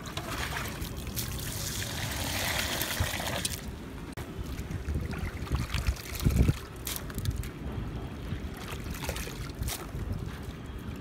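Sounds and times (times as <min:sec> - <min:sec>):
water sloshing and splashing: 0:00.0 - 0:11.0
wind rumbling on microphone: 0:00.7 - 0:11.0.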